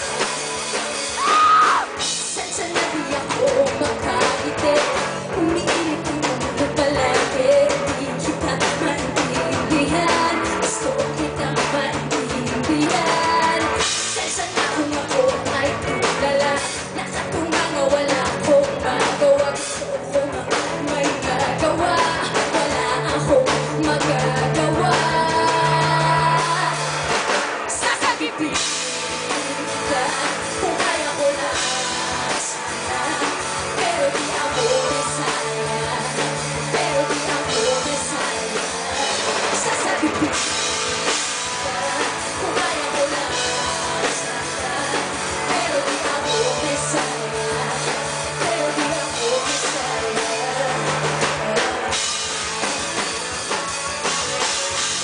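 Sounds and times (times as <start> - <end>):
pop-rock band over loudspeakers: 0.0 - 55.0.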